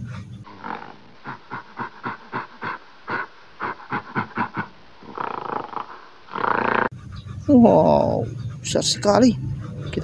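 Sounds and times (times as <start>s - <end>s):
gorilla calling: 0.5s - 10.0s.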